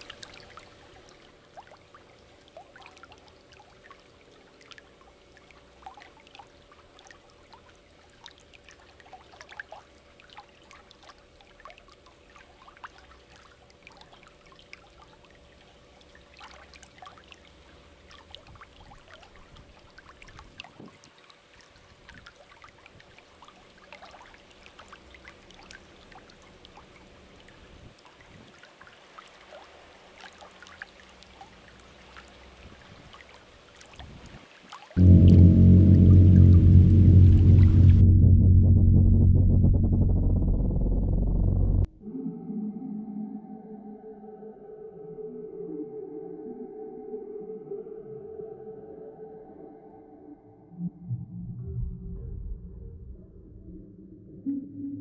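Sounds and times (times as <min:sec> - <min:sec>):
steady low hum: 0:35.0 - 0:42.0.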